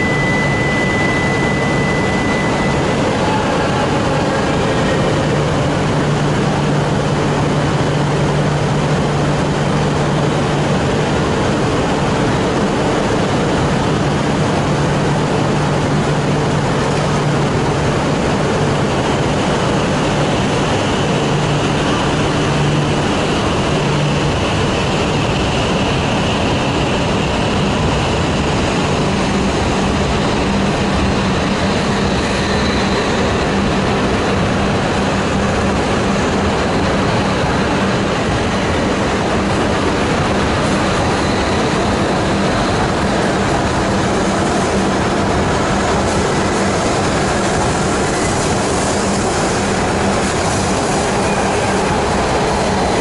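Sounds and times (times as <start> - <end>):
low hum rising in pitch: 0.0 - 11.2
train rolling along platform: 0.0 - 53.0.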